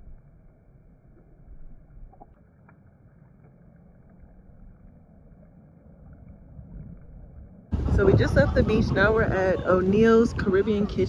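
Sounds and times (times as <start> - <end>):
wind buffeting microphone: 6.6 - 11.0.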